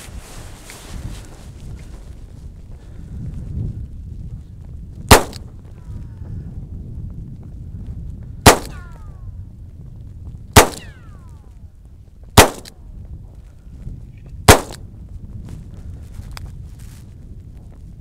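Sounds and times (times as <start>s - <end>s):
pistol shots: 5.1s - 5.5s, 8.4s - 8.8s, 10.6s - 11.1s, 12.4s - 12.8s, 14.5s - 14.8s.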